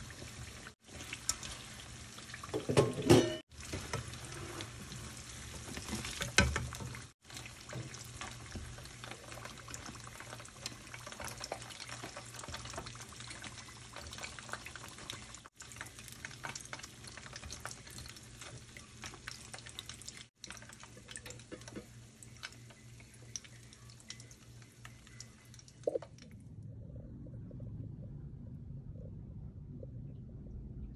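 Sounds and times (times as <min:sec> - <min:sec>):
food deep-frying in hot oil: 0:00.0 - 0:26.2.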